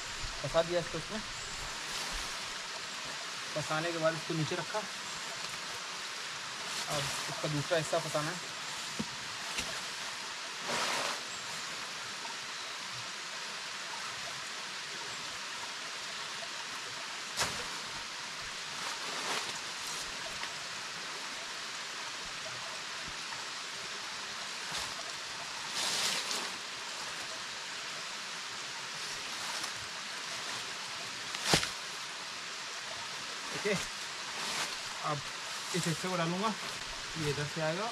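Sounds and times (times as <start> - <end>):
stream and small waterfall rushing: 0.0 - 37.9
tent fabric rustling: 10.6 - 11.4, 18.7 - 20.2, 33.5 - 37.2.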